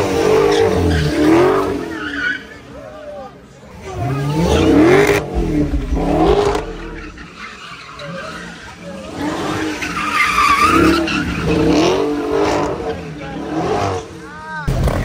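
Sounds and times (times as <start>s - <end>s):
tyres squealing on asphalt: 0.3s - 4.7s, 7.4s - 14.5s
car engine revving: 4.2s - 7.5s.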